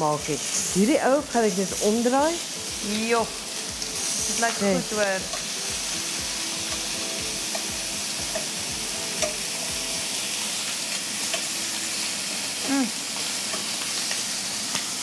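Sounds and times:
chicken sizzling in frying pan: 0:00.0 - 0:15.0
metal tongs clicking on pan: 0:06.7 - 0:07.7, 0:08.3 - 0:08.6, 0:09.2 - 0:09.4, 0:11.2 - 0:11.5, 0:13.2 - 0:15.0.

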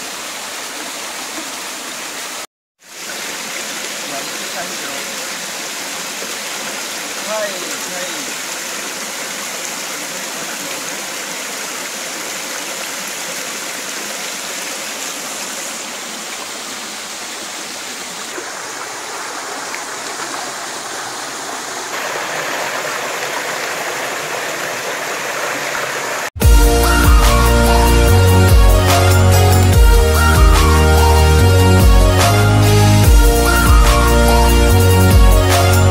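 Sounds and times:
stream rushing over stones: 0:00.0 - 0:26.4.

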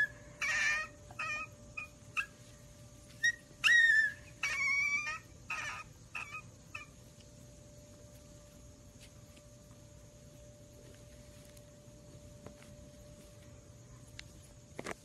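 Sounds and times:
puppies squeaking and whimpering: 0:00.0 - 0:02.4, 0:03.2 - 0:07.0.

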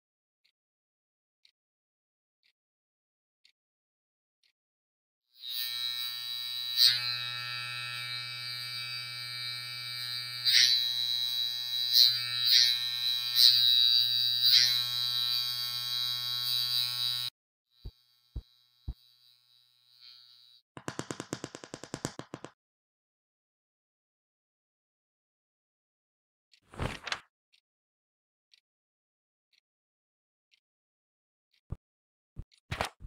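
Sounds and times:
quick run of taps: 0:20.8 - 0:22.6.

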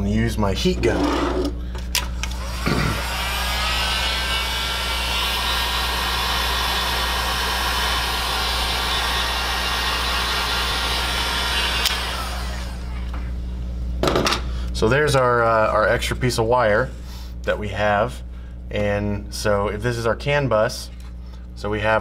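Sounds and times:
heat gun fan blowing: 0:00.5 - 0:13.5.

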